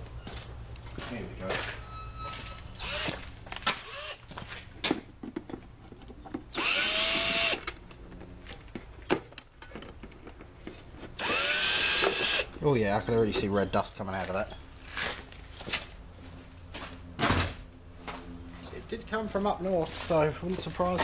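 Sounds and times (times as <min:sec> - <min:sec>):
cordless drill whine: 0:02.1 - 0:03.2, 0:03.8 - 0:04.2, 0:06.6 - 0:07.6, 0:11.2 - 0:12.5.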